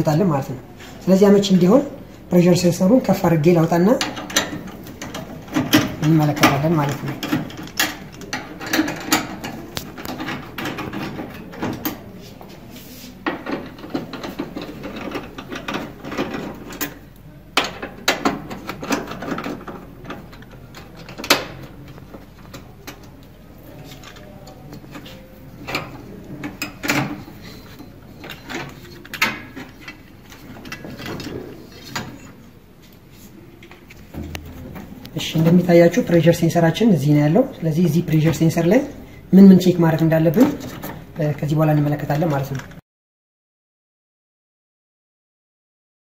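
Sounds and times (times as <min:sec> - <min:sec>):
plastic and metal parts rattling: 0:03.9 - 0:12.1, 0:13.2 - 0:32.4.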